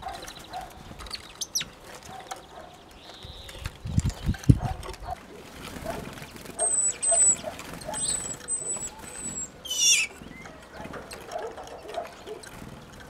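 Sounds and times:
high whistled bird notes: 0:06.6 - 0:10.5
harsh bird call sweeping downward: 0:08.0 - 0:10.2.

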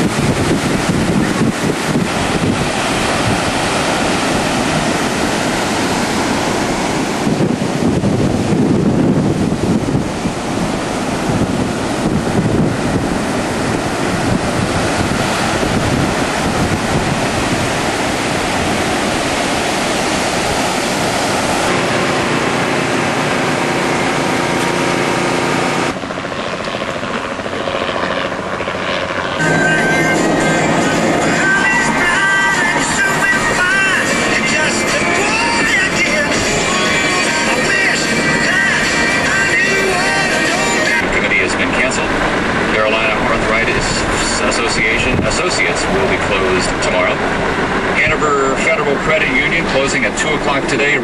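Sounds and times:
helicopter low hum: 0:00.0 - 0:51.0
rough surf breaking: 0:00.0 - 0:51.0
wind buffeting microphone: 0:00.0 - 0:51.0.

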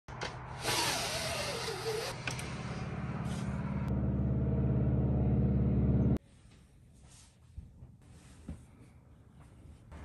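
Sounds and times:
blind motor humming: 0:00.7 - 0:02.6.

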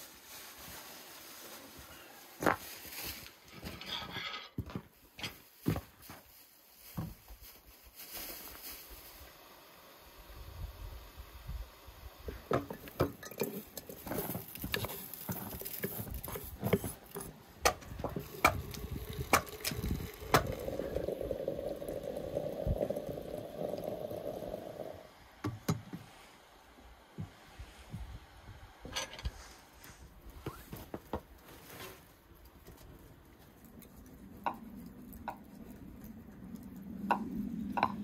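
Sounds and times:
hot water pouring into teapot: 0:08.9 - 0:25.4.

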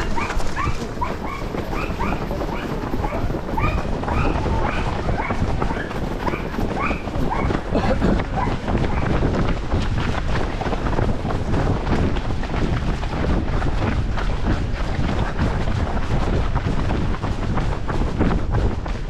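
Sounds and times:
runners' footfalls: 0:00.0 - 0:19.0
wind buffeting microphone: 0:00.0 - 0:19.0.

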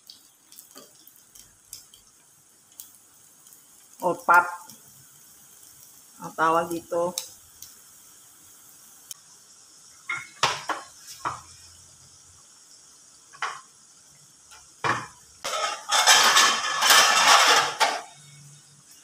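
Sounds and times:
frying sizzle: 0:00.0 - 0:19.0
metal utensils clinking on pan: 0:14.9 - 0:18.2.

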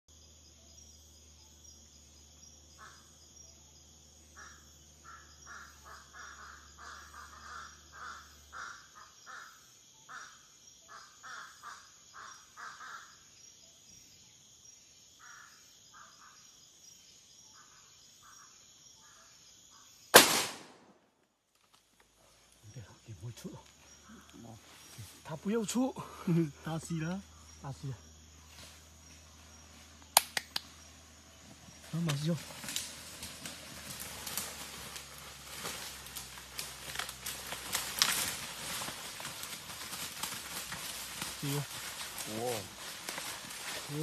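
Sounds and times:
insect drone: 0:00.1 - 0:44.0
harsh animal calls: 0:04.2 - 0:13.3
loud gunshot: 0:20.2 - 0:21.0.

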